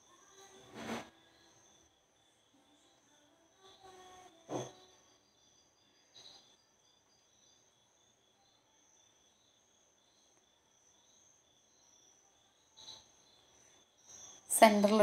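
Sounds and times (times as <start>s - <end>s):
cricket trill: 0.0s - 15.0s
soft knock: 4.5s - 4.8s.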